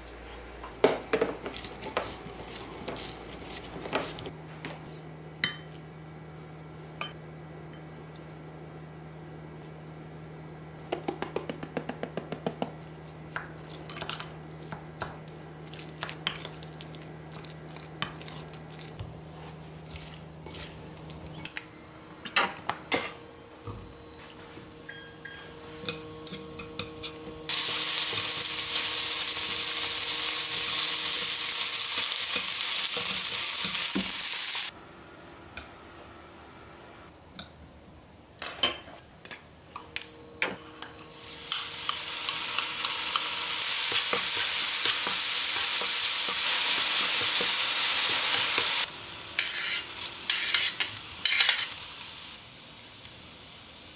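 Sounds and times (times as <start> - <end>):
spoon clinking against glass bowl: 24.9 - 27.0.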